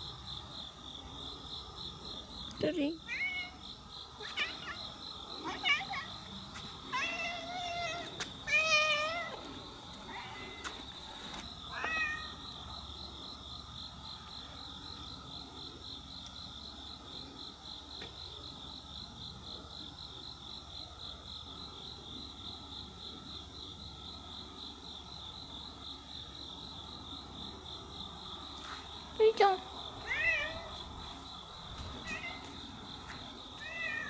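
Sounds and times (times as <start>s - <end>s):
crickets trilling: 0.0s - 34.0s
cat meowing: 6.9s - 9.4s, 11.7s - 12.4s, 30.0s - 30.8s, 32.0s - 32.5s, 33.6s - 34.0s.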